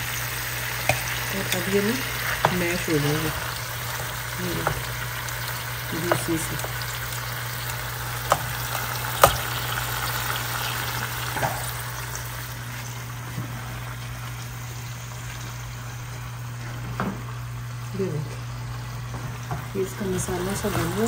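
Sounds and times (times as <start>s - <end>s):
masala sizzling in a pot: 0.0s - 21.0s
steady low hum: 0.0s - 21.0s.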